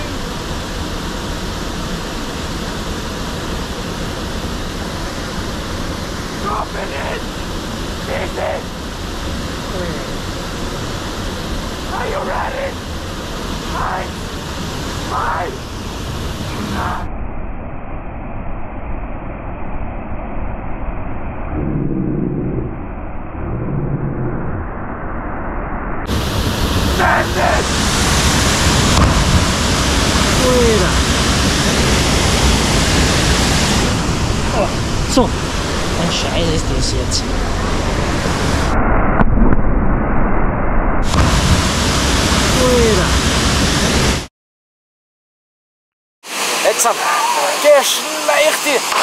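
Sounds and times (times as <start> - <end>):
flowing water rushing: 0.0 - 17.0, 26.1 - 38.5, 46.3 - 49.0.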